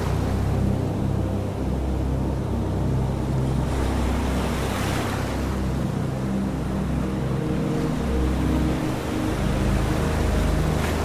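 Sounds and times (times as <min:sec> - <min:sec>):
ocean waves rumbling: 0:00.0 - 0:11.0
wave washing in: 0:02.5 - 0:11.0.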